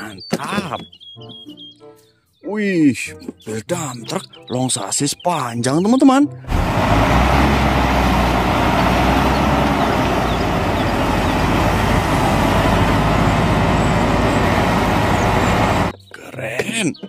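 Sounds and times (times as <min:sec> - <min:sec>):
diesel truck engine running: 0:06.5 - 0:15.9.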